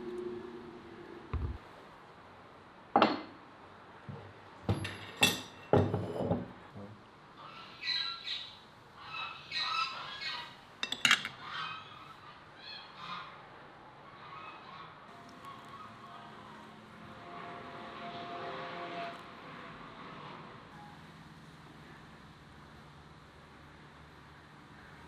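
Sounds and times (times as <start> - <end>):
ceramic dishes clinking on wood: 10.8 - 11.4.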